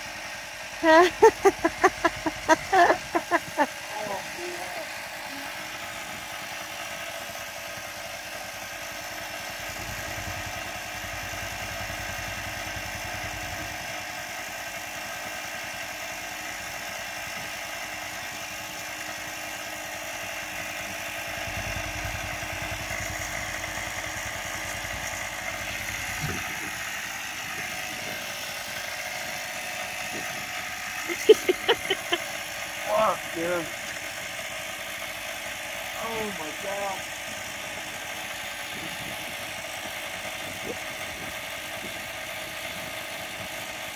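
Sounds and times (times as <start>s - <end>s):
air compressor buzzing: 20.0s - 43.4s.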